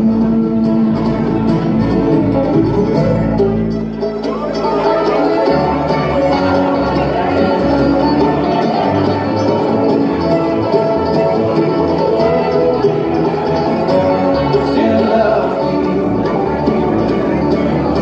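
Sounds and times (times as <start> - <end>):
bluegrass band playing: 0.0 - 18.0.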